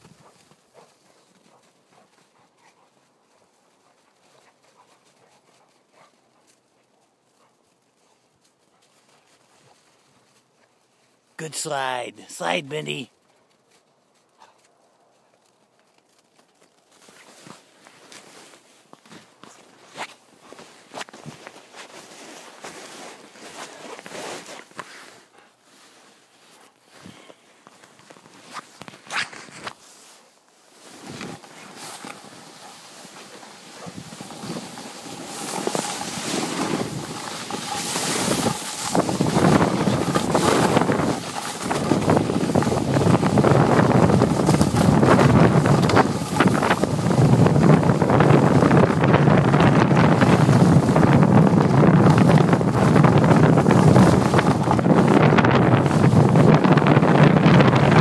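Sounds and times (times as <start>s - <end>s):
sliding over snow: 15.4s - 58.0s
wind buffeting microphone: 33.8s - 58.0s.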